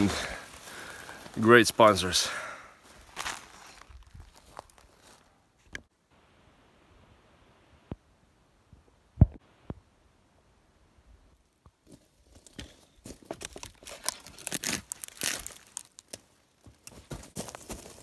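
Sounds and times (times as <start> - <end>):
crackling of pine needles and sticks: 0.0 - 5.3, 11.4 - 18.0.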